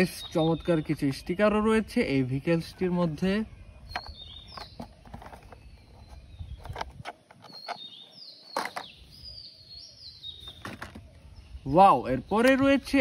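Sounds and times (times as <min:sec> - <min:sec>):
plastic toy vehicles knocking: 0:03.9 - 0:07.6, 0:08.5 - 0:08.9, 0:10.4 - 0:11.1
bird calling with high whistles: 0:03.9 - 0:11.8.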